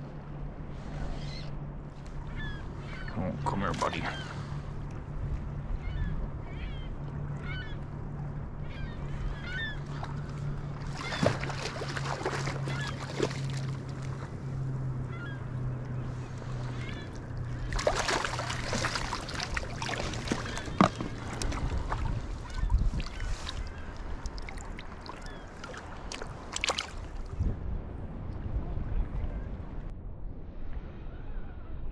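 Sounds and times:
steady low hum: 0.0s - 30.9s
fish thrashing in water: 9.9s - 14.3s, 16.4s - 27.3s.

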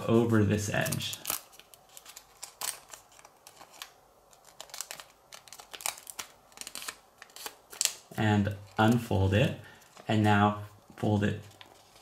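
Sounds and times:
paper crinkling being folded: 0.0s - 12.0s.

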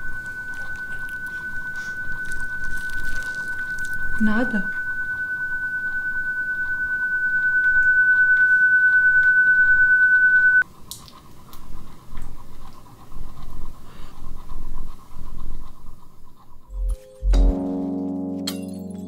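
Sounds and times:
fainter lower ringing tone: 0.0s - 10.6s, 16.7s - 19.0s
high-pitched ringing tone: 0.0s - 10.6s, 16.7s - 19.0s.

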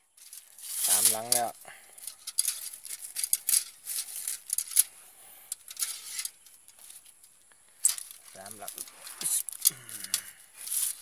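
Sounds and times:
wire cage traps rattling: 0.2s - 7.1s.

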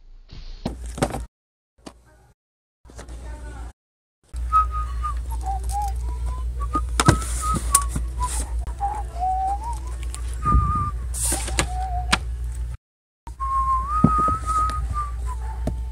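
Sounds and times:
books knocking and rustling: 0.7s - 1.3s, 6.8s - 8.1s, 14.0s - 14.7s
steady low hum: 4.3s - 15.9s
person whistling a slow tune: 4.4s - 12.2s, 13.3s - 15.6s.

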